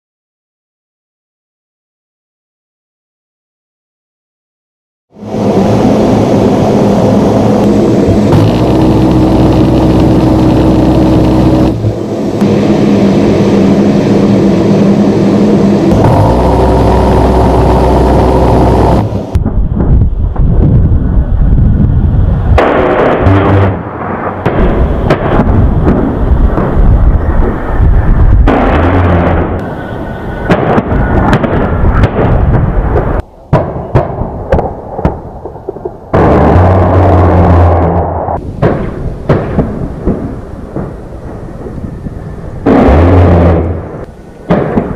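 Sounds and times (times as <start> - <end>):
jet engine drone in cockpit: 5.2 - 22.6, 24.8 - 32.0
sharp cracks and booms: 15.9 - 21.0, 22.5 - 29.7, 30.4 - 41.9, 42.6 - 44.9.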